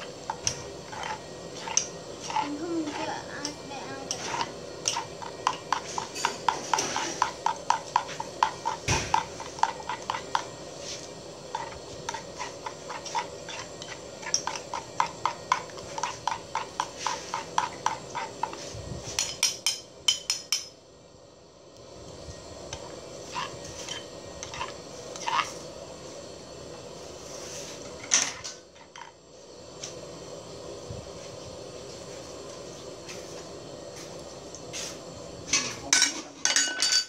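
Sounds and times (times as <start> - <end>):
metal spoon clinking in stone mortar: 36.0 - 37.0.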